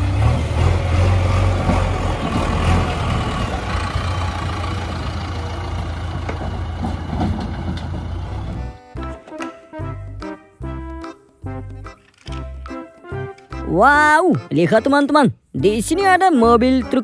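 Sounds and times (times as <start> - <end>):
diesel engine droning: 0.0 - 9.2.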